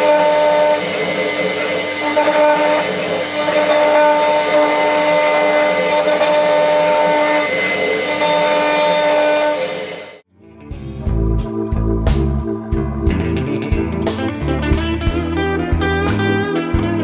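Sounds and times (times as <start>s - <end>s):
cutter machining metal: 0.0s - 10.2s
router spindle whine: 0.0s - 10.2s.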